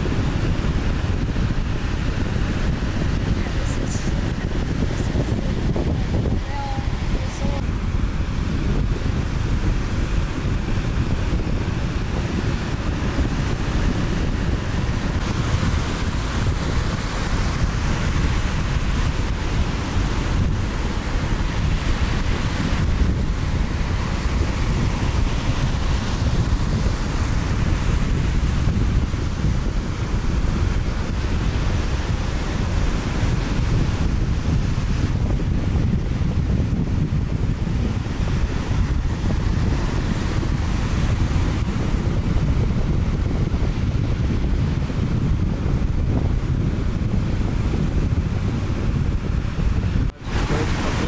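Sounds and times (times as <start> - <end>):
ocean surf breaking: 0.0 - 51.0
wind buffeting microphone: 0.0 - 51.0.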